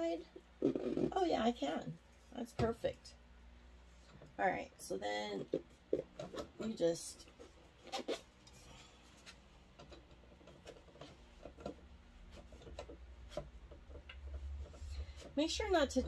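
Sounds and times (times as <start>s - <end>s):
foam rubbing and scraping on metal rod: 0.0s - 1.8s, 5.2s - 8.4s.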